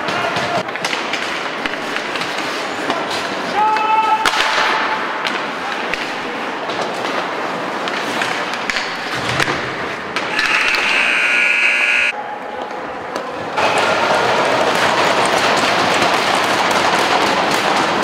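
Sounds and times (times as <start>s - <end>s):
hockey sticks and puck clacking: 0.0s - 18.0s
rink horn: 10.4s - 12.1s.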